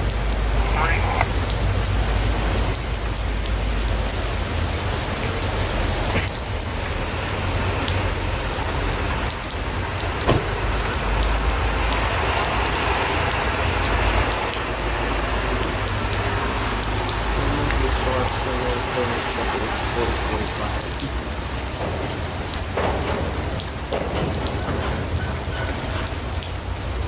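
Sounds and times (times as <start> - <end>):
train wheels on rails: 19.2 - 27.0.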